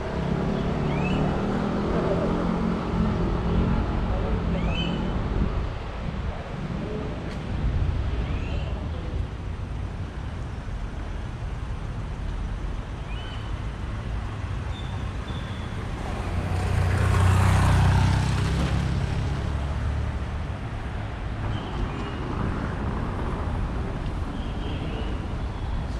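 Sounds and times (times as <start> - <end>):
street traffic rumbling: 0.0 - 25.9
vehicle passing close: 15.8 - 20.4.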